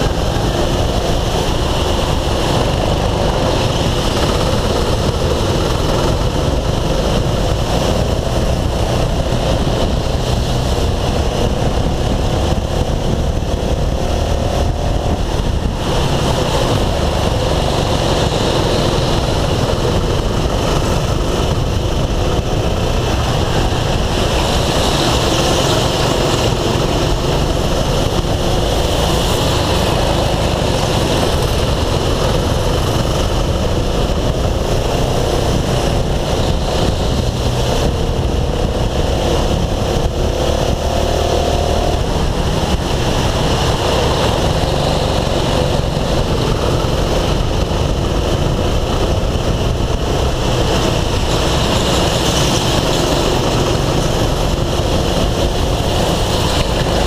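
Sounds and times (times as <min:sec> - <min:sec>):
go-kart engine running: 0:00.0 - 0:57.0
rushing wind noise: 0:00.0 - 0:57.0.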